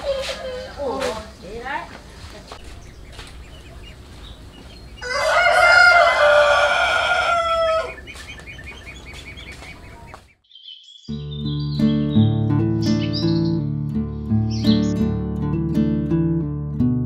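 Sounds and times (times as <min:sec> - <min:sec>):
low outdoor background: 0:00.0 - 0:17.0
rooster crowing: 0:04.9 - 0:08.2.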